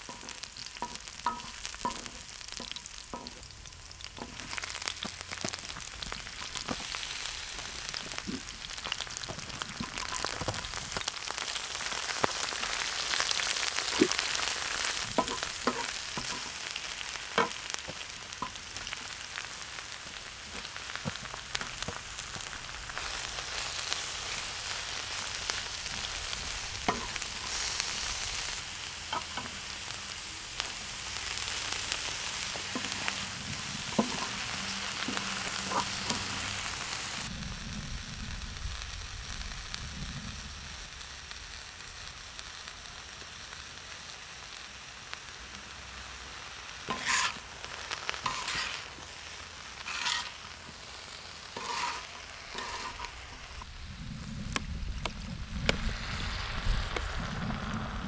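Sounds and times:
wooden spoon scraping metal: 0.0 - 3.5, 15.2 - 16.6, 26.9 - 27.7, 33.9 - 36.4, 46.9 - 47.4, 48.2 - 48.9, 49.8 - 50.4, 51.6 - 53.6
vegetables sizzling in hot oil: 0.0 - 58.0.

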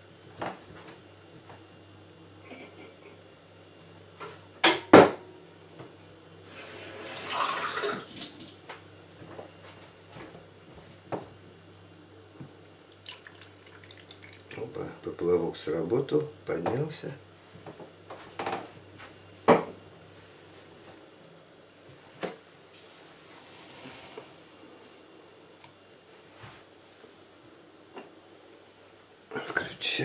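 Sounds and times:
water pouring into glass: 7.1 - 8.2, 12.8 - 14.6.

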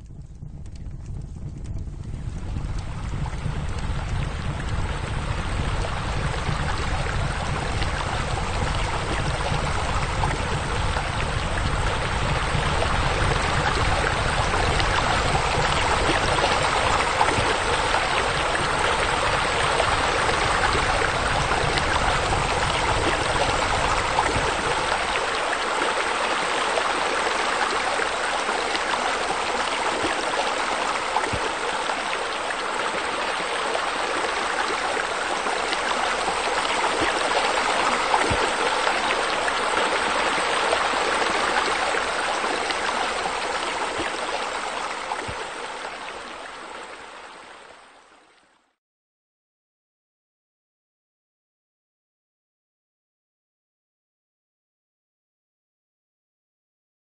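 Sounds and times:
low rumble: 0.0 - 25.8
running water: 0.0 - 48.6.

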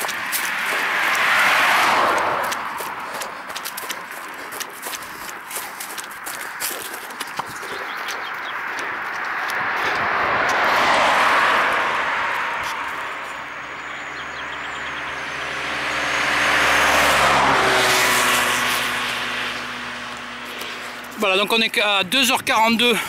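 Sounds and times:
low engine hum: 0.0 - 21.2
cars passing: 0.0 - 23.0.

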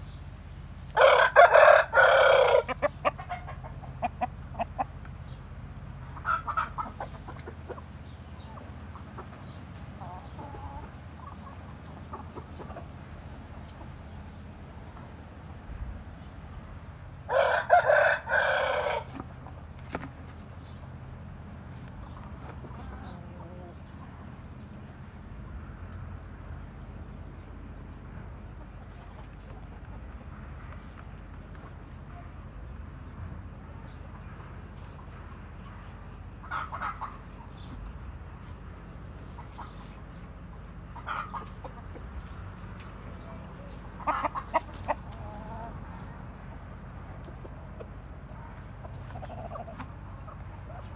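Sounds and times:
chickens clucking: 0.0 - 50.9
rooster crowing: 0.9 - 3.0, 17.2 - 19.2.

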